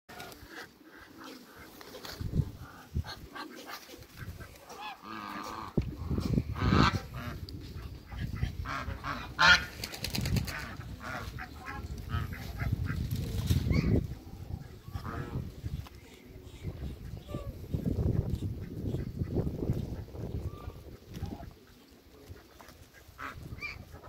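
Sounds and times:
geese honking: 0:02.8 - 0:09.7.

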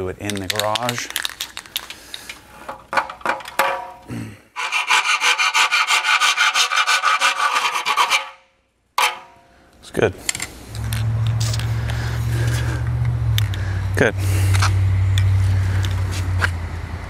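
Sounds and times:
spray paint can rattling: 0:00.2 - 0:02.3.

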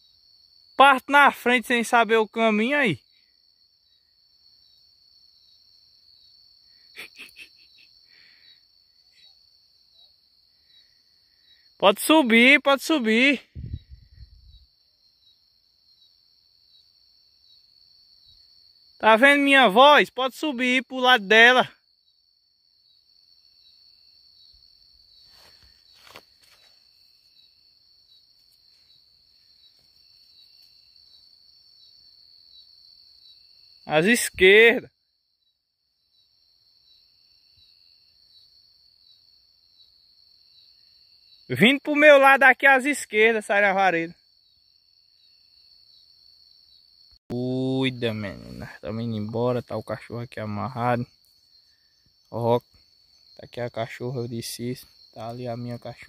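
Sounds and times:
crickets chirring: 0:00.0 - 0:56.0
faint rustles: 0:25.1 - 0:27.4.

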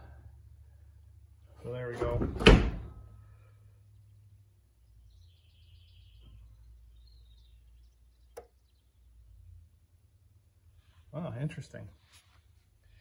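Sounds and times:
faint bird chirps: 0:03.2 - 0:09.6.

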